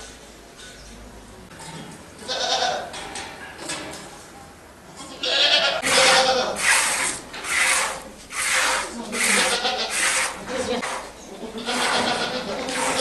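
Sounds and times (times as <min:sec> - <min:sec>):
goats bleating: 0:02.2 - 0:02.9, 0:05.0 - 0:06.6, 0:09.0 - 0:13.0.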